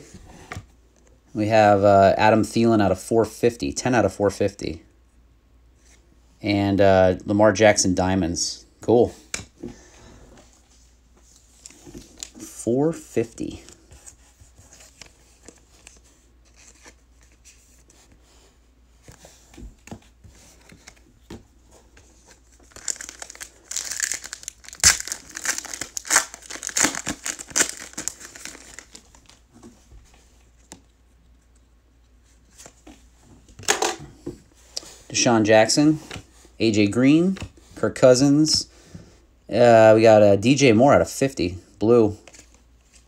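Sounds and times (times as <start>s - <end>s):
wrapper crinkling and tearing: 22.6s - 29.4s.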